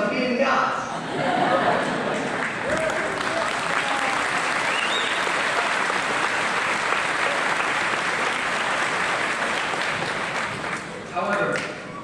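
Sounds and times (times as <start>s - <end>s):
audience applause: 1.6s - 11.0s.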